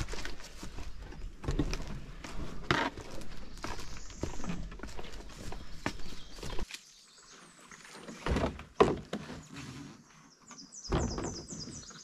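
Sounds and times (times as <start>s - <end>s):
footsteps on forest trail: 0.0s - 8.0s
faint birds chirping: 0.4s - 12.0s
canoe knocks and heavy thumps: 8.2s - 9.3s, 10.9s - 11.6s.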